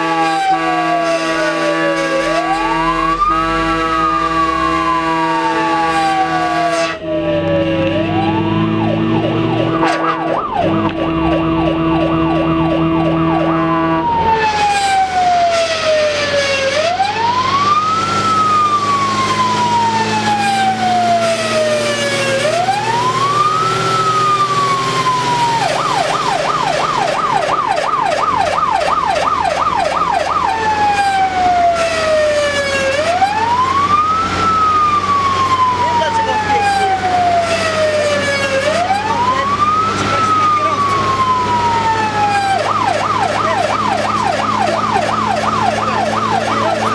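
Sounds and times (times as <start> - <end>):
steady horn tone: 0.0 - 7.1, 8.2 - 17.1
fire engine siren wailing: 0.0 - 46.9
siren fast yelp: 0.0 - 46.9
truck engine running low: 1.7 - 46.9.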